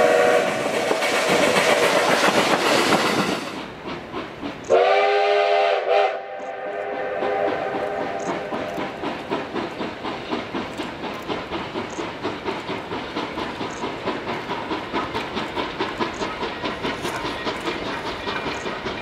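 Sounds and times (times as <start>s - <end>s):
steam hissing: 0.0s - 19.0s
steam locomotive chuffing: 0.0s - 19.0s.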